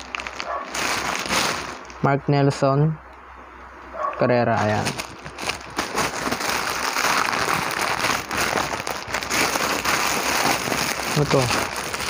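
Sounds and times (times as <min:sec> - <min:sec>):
plastic bag crinkling: 0:00.0 - 0:02.1, 0:04.5 - 0:12.0.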